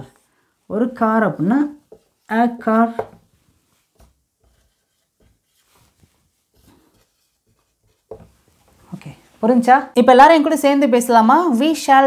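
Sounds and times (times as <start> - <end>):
rubbing sounds: 1.4 - 9.0.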